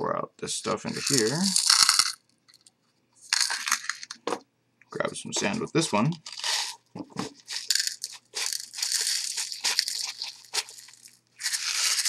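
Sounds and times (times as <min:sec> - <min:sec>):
sand and gravel scraping: 0:00.8 - 0:02.0, 0:07.4 - 0:12.0.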